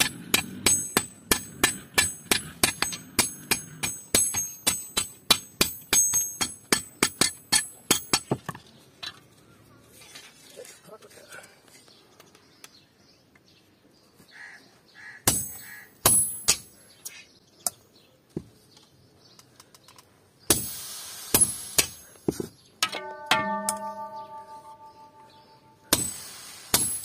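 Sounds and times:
hammer striking chisel on metal: 0.0s - 8.4s, 22.8s - 27.0s.

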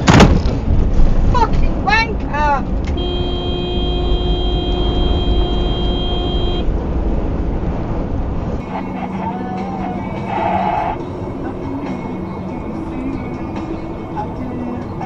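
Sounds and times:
road and engine rumble: 0.0s - 15.0s
vehicle horn: 2.9s - 6.7s, 10.2s - 11.0s.

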